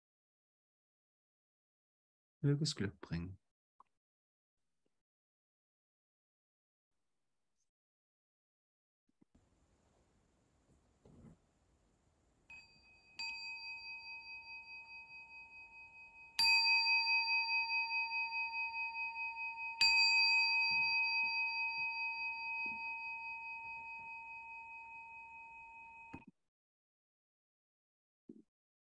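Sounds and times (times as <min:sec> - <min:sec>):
meditation bell ringing: 0:12.5 - 0:26.2.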